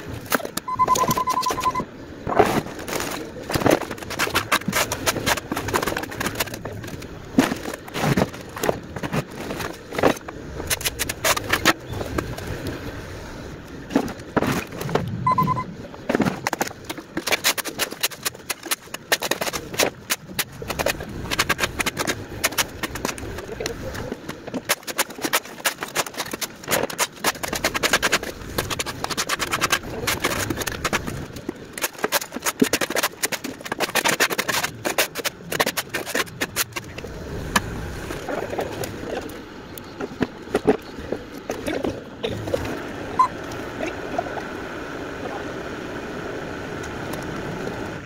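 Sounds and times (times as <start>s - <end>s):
mini excavator running: 0.0s - 12.2s
debris clattering and scraping: 0.0s - 12.5s, 13.9s - 42.7s.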